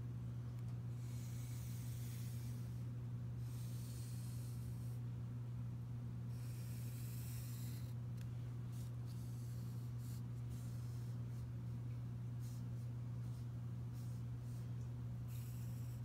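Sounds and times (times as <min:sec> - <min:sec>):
steady low hum: 0:00.0 - 0:16.0
pencil scratching on paper: 0:01.0 - 0:02.8, 0:06.3 - 0:08.0, 0:08.7 - 0:11.5, 0:12.4 - 0:16.0.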